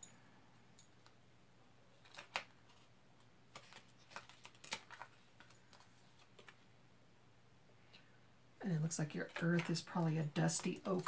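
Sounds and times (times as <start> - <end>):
cards clicking and tapping: 2.0 - 2.8, 3.5 - 6.6, 9.2 - 11.0.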